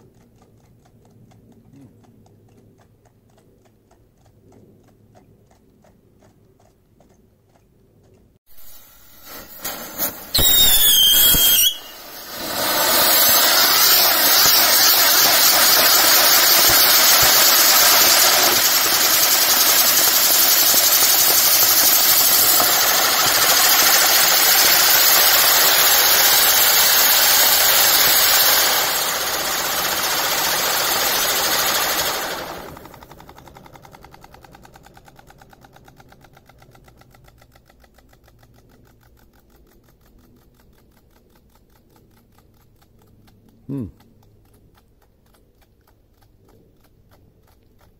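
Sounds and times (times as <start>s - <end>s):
firework rushing hiss: 8.5s - 33.1s
firework crackles: 8.5s - 33.7s
firework whistle falling in pitch: 8.6s - 17.4s.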